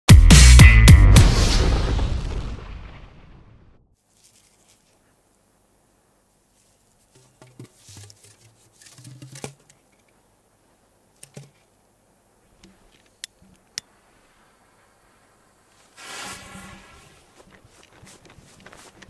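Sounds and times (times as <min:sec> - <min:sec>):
paper rustling: 0:04.1 - 0:05.0, 0:06.5 - 0:09.7, 0:16.3 - 0:19.0.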